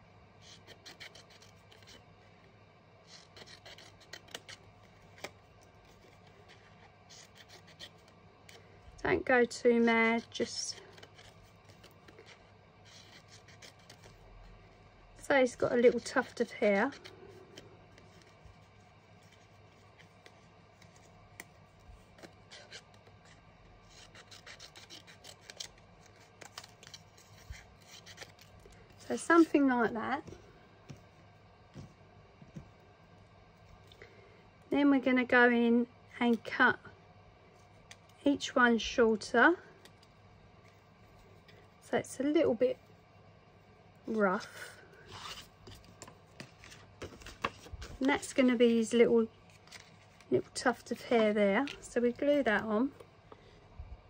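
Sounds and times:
scissors snipping cardstock: 3.1 - 5.4.

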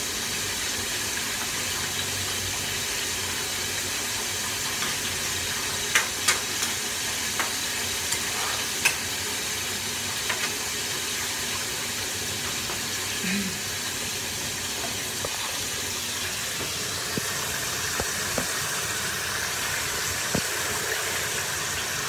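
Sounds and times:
food sizzling in a frying pan: 0.0 - 22.0
utensil scraping a pan: 8.1 - 9.0.

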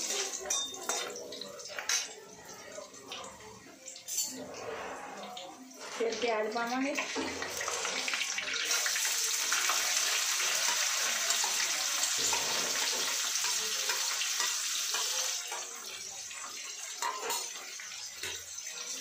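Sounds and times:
onions sizzling in hot oil: 5.4 - 19.0.

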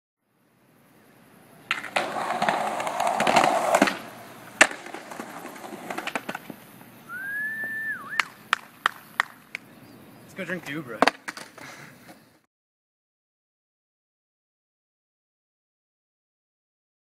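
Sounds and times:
skateboard wheels rolling on concrete: 0.4 - 12.5
skateboard clack: 1.6 - 6.8, 8.1 - 9.7, 10.6 - 12.2.

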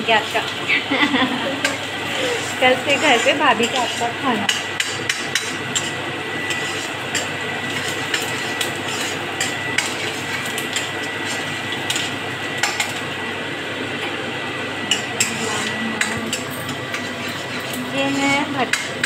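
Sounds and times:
onion frying hiss: 0.0 - 13.4
ladle scraping a pan: 1.6 - 12.8, 14.9 - 19.0.

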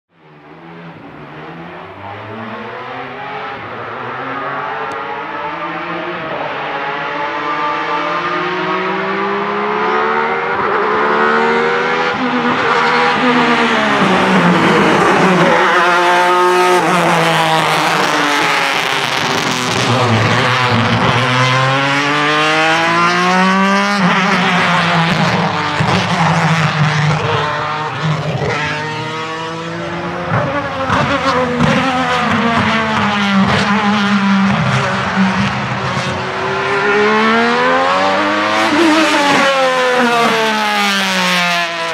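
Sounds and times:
race car engine high revs: 1.2 - 41.9.

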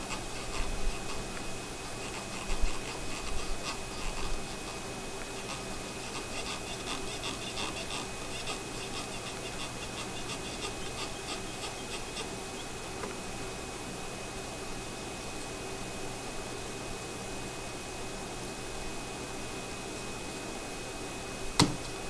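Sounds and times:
hot air station hissing: 0.0 - 13.5.

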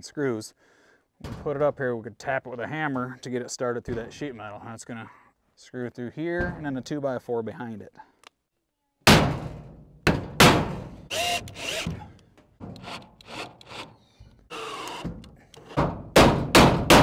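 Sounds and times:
cordless drill driving screws: 11.1 - 12.1, 12.8 - 15.8.

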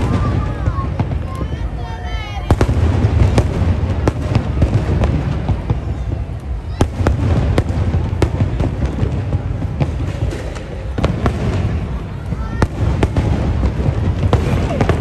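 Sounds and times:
fireworks bangs: 0.0 - 15.0.

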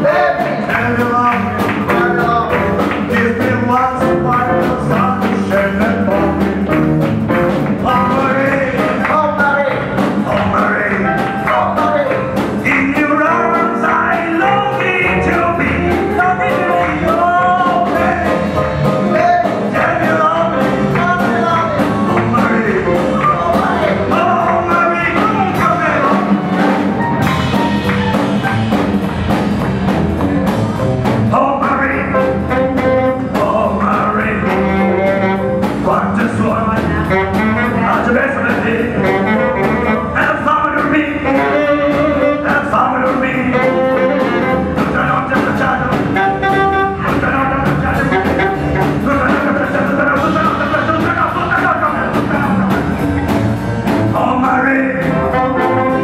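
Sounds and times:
swing band playing: 0.0 - 56.0
tenor saxophone melody: 32.3 - 33.4, 34.4 - 35.9, 36.9 - 38.3, 38.9 - 40.3, 41.2 - 42.5, 43.3 - 44.9, 46.0 - 49.3, 55.0 - 56.0.

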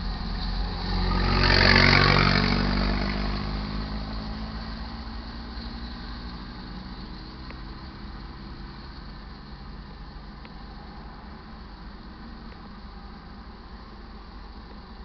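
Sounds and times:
vehicle engine passing by: 0.0 - 8.7.

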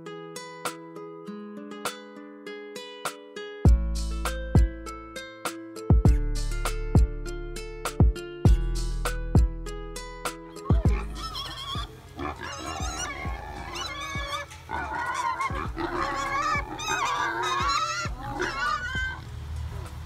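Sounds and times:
pigs squealing and grunting: 10.6 - 19.2.

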